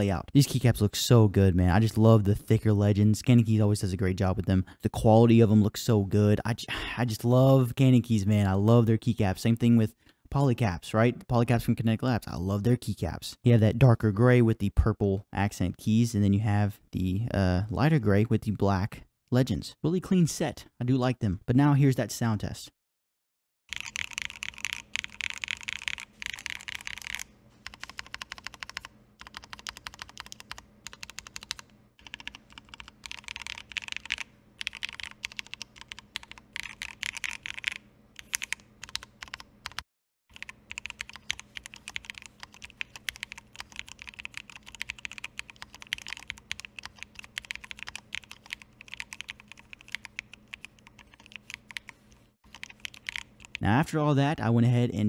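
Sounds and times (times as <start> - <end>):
mechanical keyboard typing: 23.7 - 53.6.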